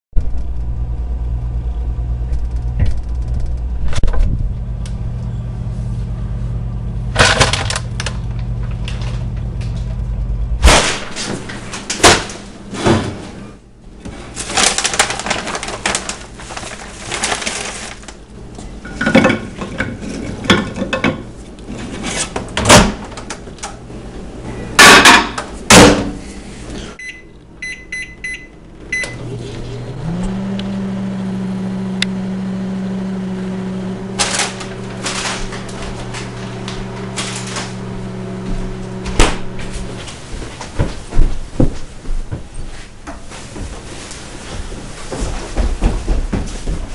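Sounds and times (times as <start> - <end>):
microwave oven humming: 0.2 - 45.6
short keypad beeps: 27.0 - 29.2.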